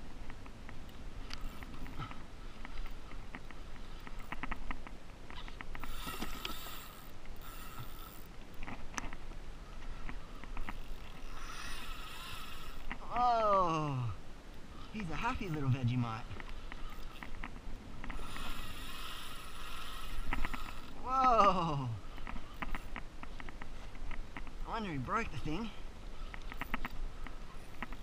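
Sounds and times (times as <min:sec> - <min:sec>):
clicks and knocks against kayak hull: 0:00.2 - 0:06.6, 0:08.5 - 0:10.8, 0:22.2 - 0:24.6, 0:26.2 - 0:28.0.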